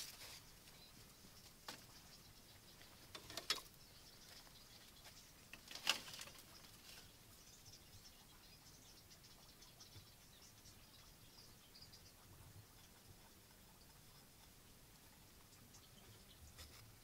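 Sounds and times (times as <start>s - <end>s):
bamboo baskets rustling and knocking: 0.0s - 2.0s, 2.7s - 7.2s.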